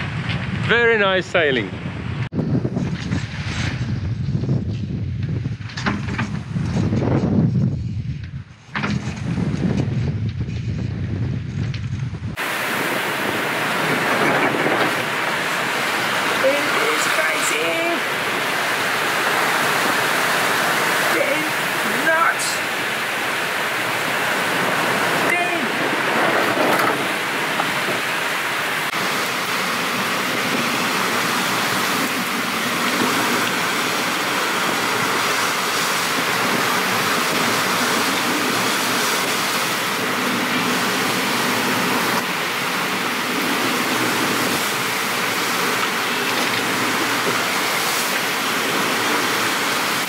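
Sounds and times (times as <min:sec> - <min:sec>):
wind rushing: 0:00.0 - 0:50.0
water rushing around boat: 0:12.4 - 0:50.0.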